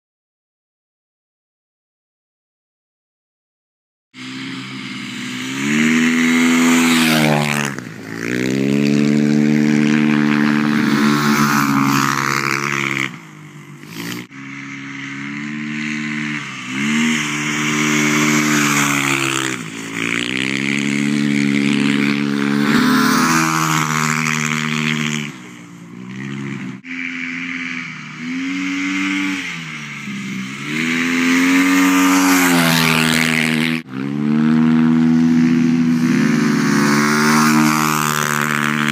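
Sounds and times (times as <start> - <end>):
motorcycle engine revving: 4.2 - 38.9.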